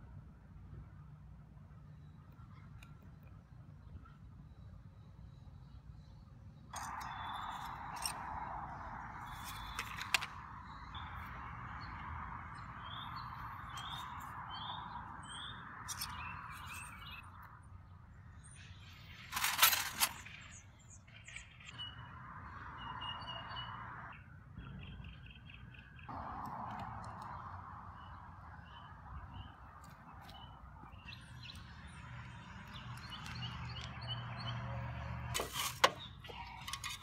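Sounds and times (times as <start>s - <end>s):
small birds chirping: 2.0s - 17.5s, 27.1s - 37.0s
metal tool clatter: 19.3s - 20.3s, 35.4s - 37.0s.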